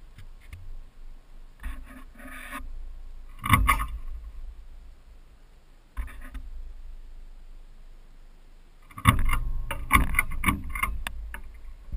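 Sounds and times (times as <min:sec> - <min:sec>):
low steady rumble: 0:00.0 - 0:11.9
camera scraping and rubbing: 0:01.6 - 0:02.7, 0:06.0 - 0:06.5, 0:08.9 - 0:11.9.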